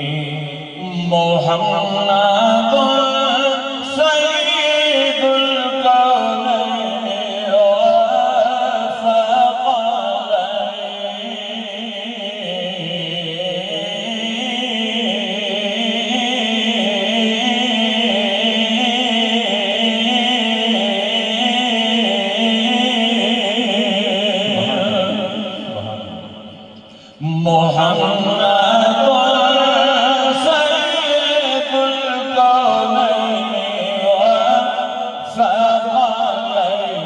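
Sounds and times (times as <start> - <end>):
man chanting: 0.0 - 37.0.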